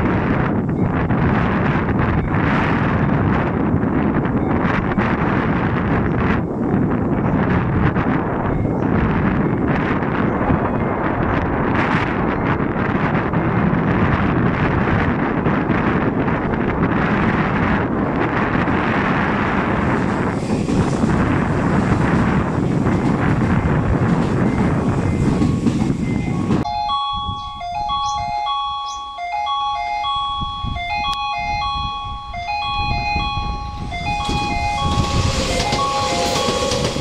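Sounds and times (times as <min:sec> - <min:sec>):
train rushing: 0:00.0 - 0:26.7, 0:31.6 - 0:37.0
wind buffeting microphone: 0:00.0 - 0:37.0
electronic chime melody: 0:26.1 - 0:37.0.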